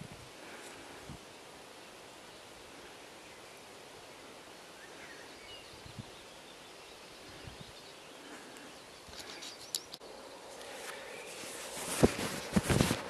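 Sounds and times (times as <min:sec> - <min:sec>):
faint bird chirps: 0:01.2 - 0:11.6.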